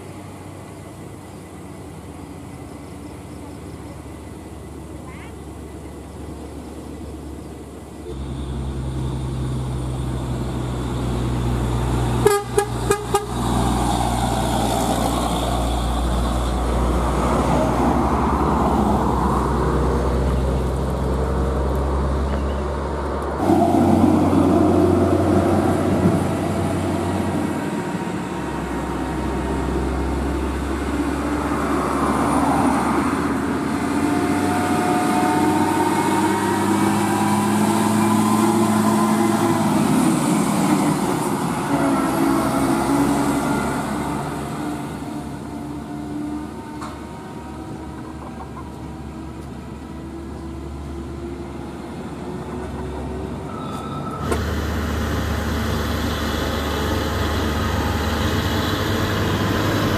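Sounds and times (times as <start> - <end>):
diesel engine roaring: 0.0 - 59.9
diesel trucks labouring uphill: 0.0 - 59.9
truck horn toots: 12.2 - 13.5, 41.6 - 43.0.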